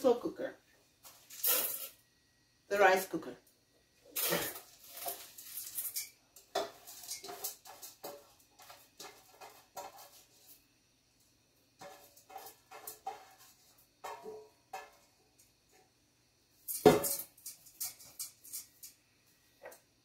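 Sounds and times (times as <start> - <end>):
rice grains rattling into pot: 1.1 - 2.0, 4.2 - 10.4.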